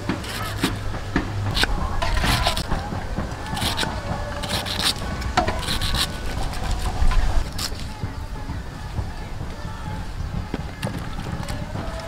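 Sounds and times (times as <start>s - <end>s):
knife slicing fibrous stem: 0.1s - 0.8s, 1.5s - 2.8s, 3.4s - 7.8s.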